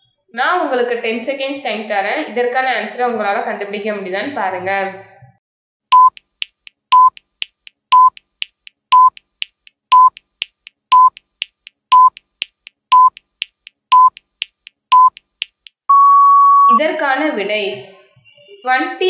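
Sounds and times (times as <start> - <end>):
short electronic beeps: 5.9 - 6.2, 6.9 - 7.2, 7.9 - 8.2, 8.9 - 9.2, 9.9 - 10.2, 10.9 - 11.2, 11.9 - 12.2, 12.9 - 13.2, 13.9 - 14.2, 14.9 - 15.2, 15.9 - 16.8
faint timer ticks: 5.9 - 15.9.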